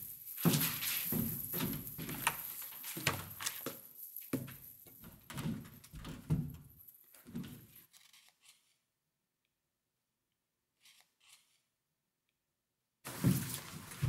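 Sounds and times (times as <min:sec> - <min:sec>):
rustling of rummaging: 0:00.0 - 0:04.8, 0:13.1 - 0:14.0.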